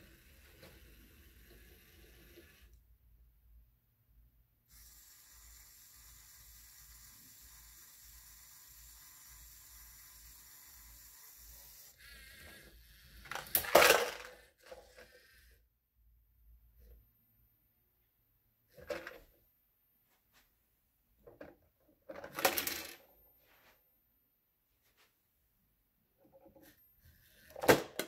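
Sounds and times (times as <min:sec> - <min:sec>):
toy motors whirring: 0:00.0 - 0:02.8, 0:04.7 - 0:15.6
hard plastic clattering: 0:13.3 - 0:14.4.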